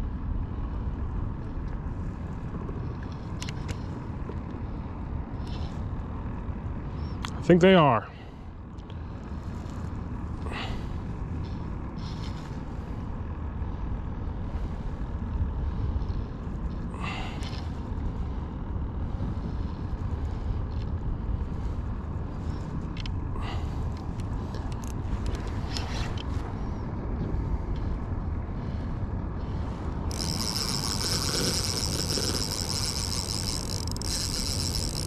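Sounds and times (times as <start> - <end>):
wind and water rumble: 0.0 - 35.0.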